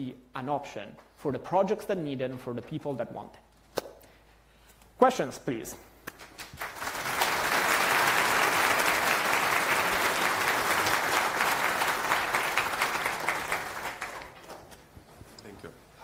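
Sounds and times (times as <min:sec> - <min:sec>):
audience applauding: 0:06.2 - 0:14.4.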